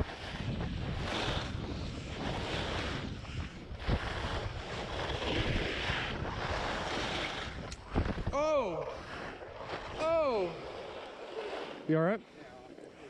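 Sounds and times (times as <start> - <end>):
skis scraping over packed snow: 0.0 - 8.1
wind buffeting microphone: 0.0 - 11.7.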